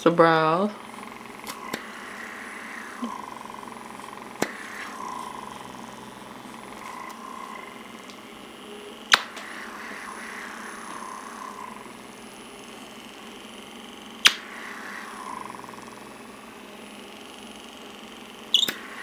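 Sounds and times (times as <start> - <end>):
suction pump whirring: 0.3 - 19.0
sharp clicks: 14.2 - 14.5.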